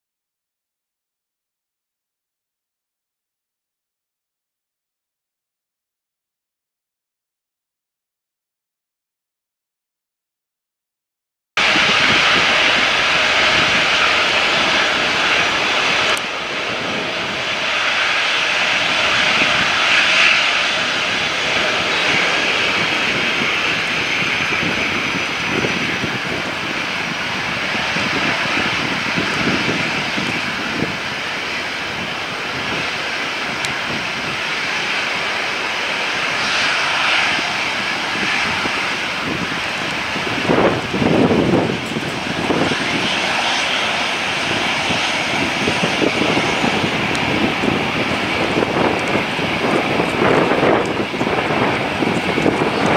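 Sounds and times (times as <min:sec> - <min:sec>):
jet engines whining: 0:11.6 - 0:52.9
low rumbles: 0:11.6 - 0:52.9.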